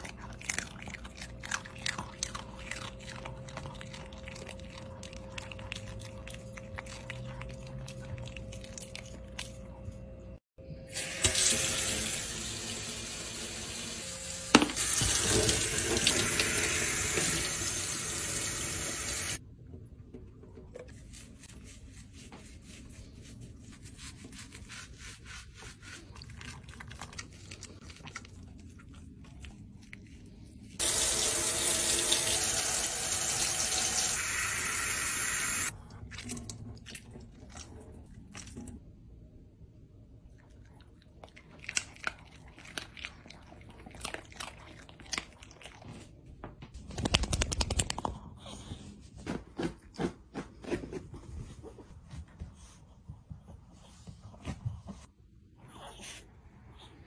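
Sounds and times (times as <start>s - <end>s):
faucet running into metal sink: 11.0s - 19.4s, 30.8s - 35.7s.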